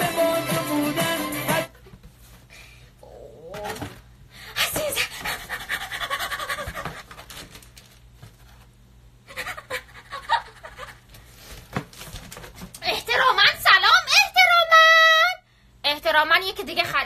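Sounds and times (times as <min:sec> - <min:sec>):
plastic packaging rustling: 0:07.1 - 0:08.8.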